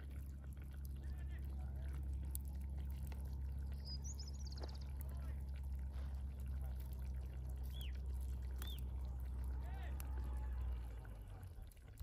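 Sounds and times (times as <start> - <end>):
steady low rumble: 0.0 - 12.0
bird chirp and trill: 3.6 - 5.0, 7.6 - 9.0.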